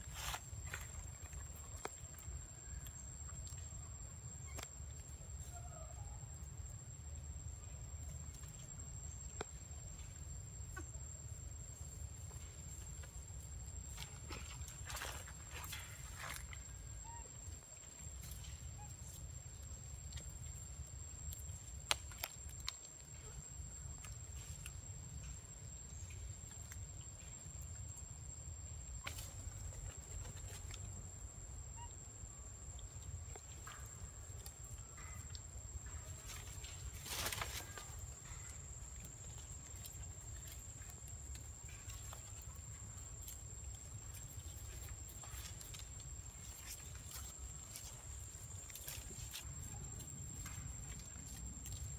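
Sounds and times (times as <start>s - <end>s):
monkeys rustling in branches: 36.2s - 38.4s.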